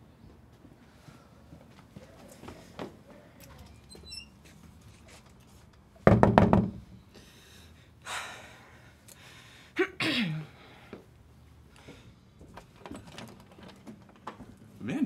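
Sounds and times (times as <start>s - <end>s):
loud knocks on a door: 6.1s - 6.8s.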